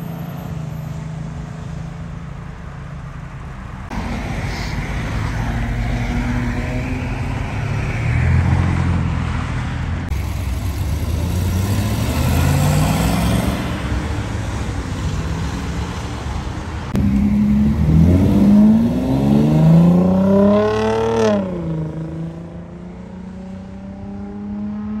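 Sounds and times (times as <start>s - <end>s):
car engines accelerating past: 4.2s - 14.4s, 16.9s - 25.0s.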